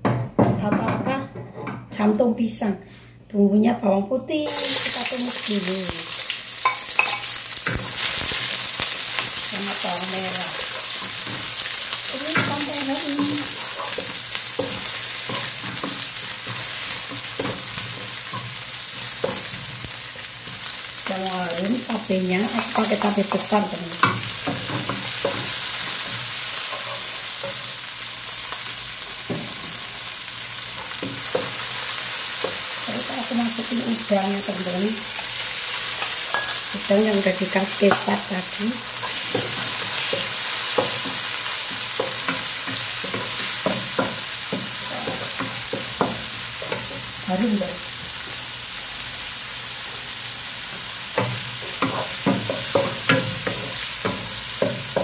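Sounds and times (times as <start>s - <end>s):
food sizzling in hot oil: 4.5s - 55.0s
spatula scraping and tapping pan: 6.6s - 20.7s, 22.5s - 27.8s, 30.8s - 32.9s, 37.5s - 38.3s, 39.0s - 47.1s, 50.7s - 55.0s.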